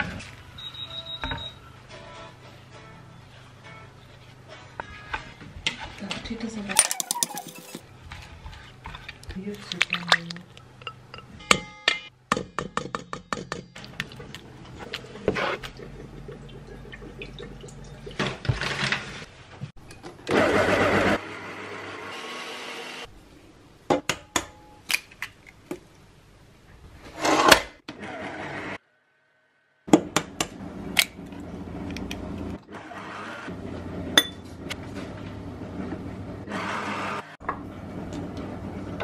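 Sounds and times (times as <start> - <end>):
metal utensils tapping a bowl: 6.8 - 7.8, 9.8 - 13.8.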